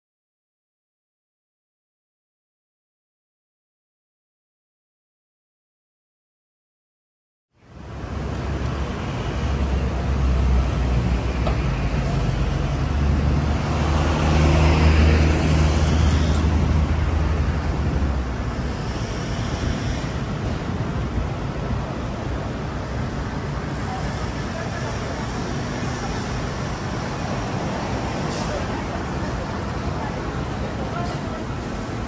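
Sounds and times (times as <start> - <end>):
traffic engine drone: 7.5 - 32.0
vehicle passing close: 8.0 - 20.7.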